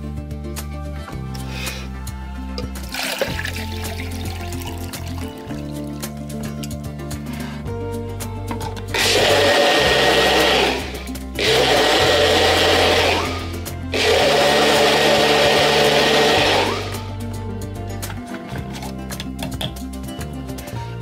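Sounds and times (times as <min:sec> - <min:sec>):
background music: 0:00.0 - 0:21.0
blender motor churning liquid: 0:02.9 - 0:05.7, 0:09.0 - 0:17.1.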